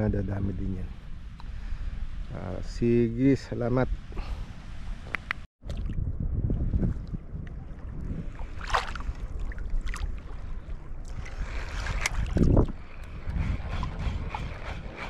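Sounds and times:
wind buffeting microphone: 0.0s - 15.0s
shallow water sloshing: 7.6s - 15.0s
water splashing: 7.8s - 12.8s.

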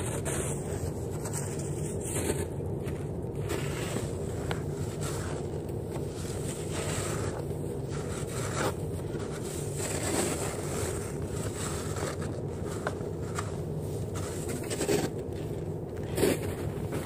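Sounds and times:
snow shovel scraping snow: 6.1s - 12.3s.

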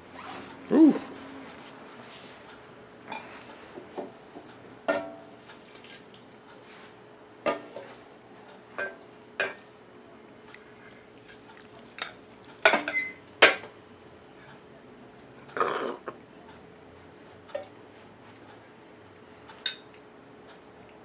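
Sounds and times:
utensils clinking on plates: 12.0s - 13.7s.

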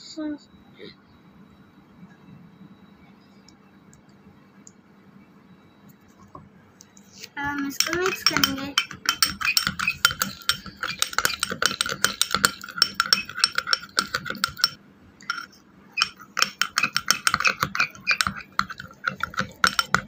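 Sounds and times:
metal spoon stirring in glass bowl: 7.2s - 20.0s.

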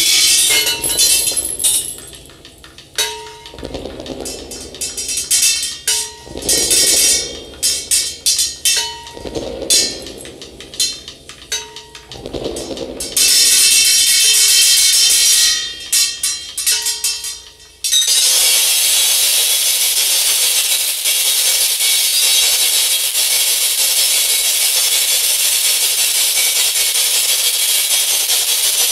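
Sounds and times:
experimental rock music: 0.0s - 18.2s.

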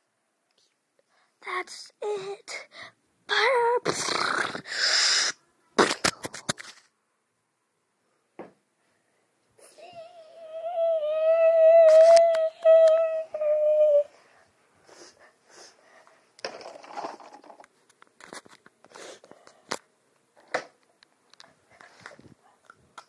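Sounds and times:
child humming: 9.6s - 14.2s.

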